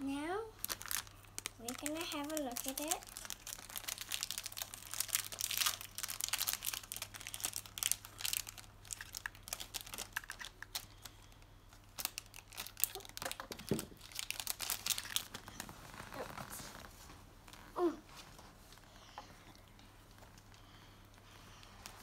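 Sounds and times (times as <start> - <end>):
plastic packaging crinkling: 0.6 - 17.6.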